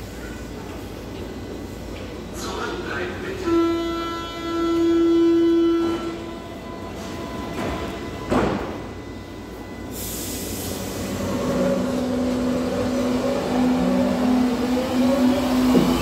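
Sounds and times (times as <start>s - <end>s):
train traction motor whine: 0.2s - 16.0s.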